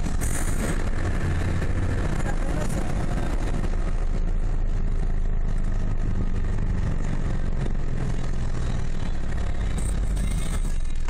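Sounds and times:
car engine hum: 0:00.0 - 0:11.0
road noise: 0:00.0 - 0:11.0.

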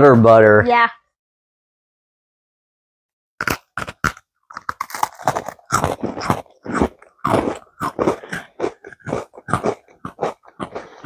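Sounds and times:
crunching and chewing cookies: 0:03.4 - 0:11.0.

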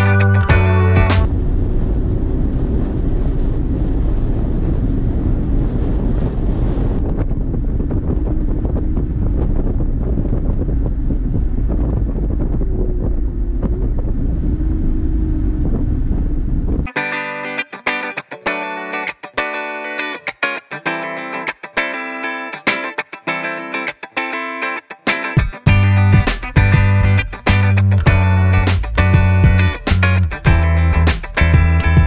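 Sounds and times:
road and engine rumble: 0:00.0 - 0:16.9, 0:25.6 - 0:32.0
wind buffeting microphone: 0:00.5 - 0:16.9, 0:25.6 - 0:32.0.

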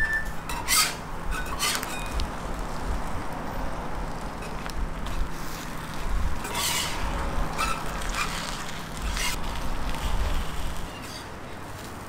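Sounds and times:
low background rumble: 0:00.4 - 0:10.9
metal spatula scraping griddle: 0:00.5 - 0:02.2, 0:06.4 - 0:11.3.

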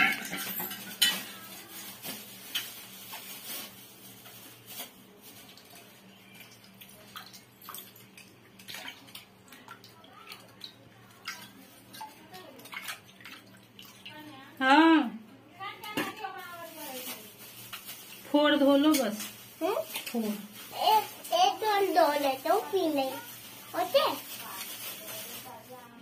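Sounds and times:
clinks against steel bowl: 0:00.0 - 0:01.3
water sloshing and splashing: 0:00.1 - 0:14.6.

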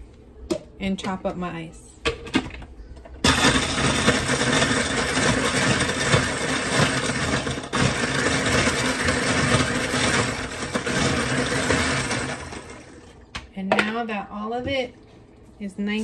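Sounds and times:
blender crushing ice: 0:03.2 - 0:13.1.

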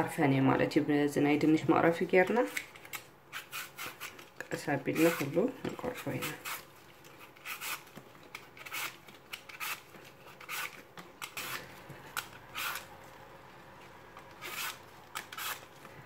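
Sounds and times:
peeler scraping apple skin: 0:02.3 - 0:13.0, 0:14.1 - 0:15.9.

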